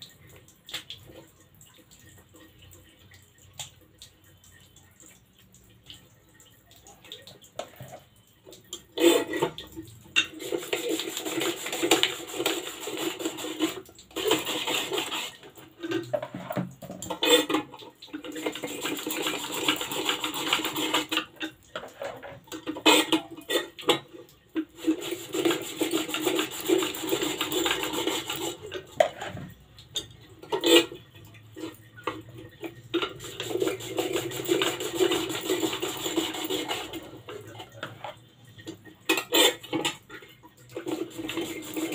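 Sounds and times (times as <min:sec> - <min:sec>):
potato slicer scraping: 0:10.4 - 0:15.4, 0:18.6 - 0:21.2, 0:24.8 - 0:28.6, 0:33.2 - 0:37.1.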